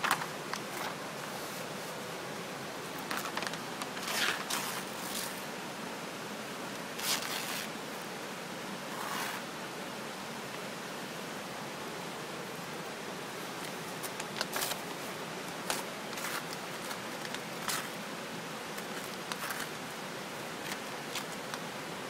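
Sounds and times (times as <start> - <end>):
steady hiss: 0.0 - 22.0
paper poster tearing: 7.0 - 7.7.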